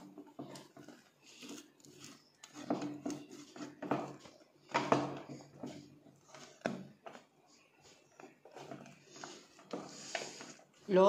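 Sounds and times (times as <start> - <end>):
spatula scraping and knocking a pot: 0.0 - 10.8.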